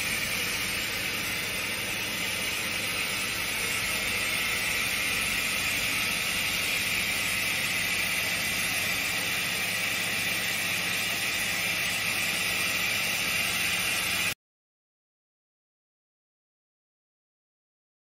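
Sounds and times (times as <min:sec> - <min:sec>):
lathe running with hiss and hum: 0:00.0 - 0:14.4.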